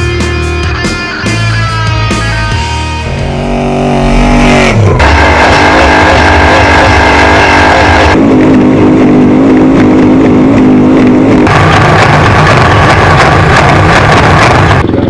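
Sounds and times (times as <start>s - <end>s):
race truck engine at high revs: 3.0s - 15.0s.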